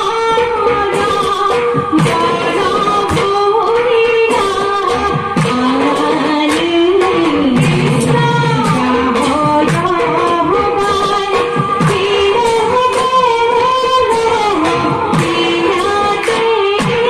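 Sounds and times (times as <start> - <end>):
women singing in unison: 0.0 - 17.0
hand claps: 14.7 - 17.0.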